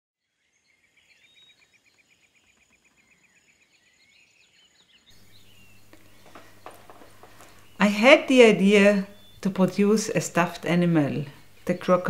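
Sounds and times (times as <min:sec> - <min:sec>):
gliding whistled bird calls: 0:00.2 - 0:07.8, 0:09.0 - 0:09.4
rapid bird chirps: 0:00.4 - 0:08.2, 0:09.0 - 0:09.5
low steady room hum: 0:05.1 - 0:12.0.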